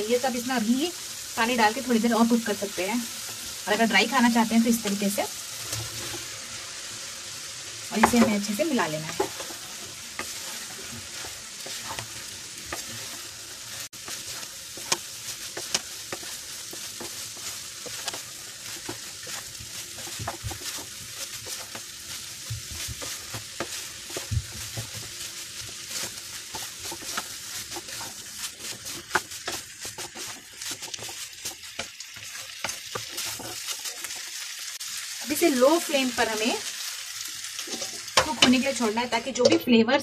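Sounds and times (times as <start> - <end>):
food sizzling in a frying pan: 0.0 - 40.0
spatula scraping and tapping pan: 4.8 - 6.4, 7.9 - 34.4, 37.6 - 39.7.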